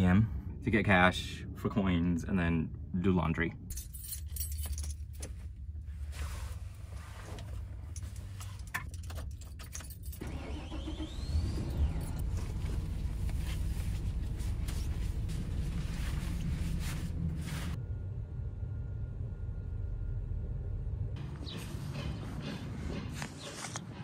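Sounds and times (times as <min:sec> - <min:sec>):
keys jingling: 0:03.7 - 0:05.4, 0:07.8 - 0:10.2
van engine idling: 0:10.2 - 0:21.2
sunshade rustling: 0:12.2 - 0:17.8.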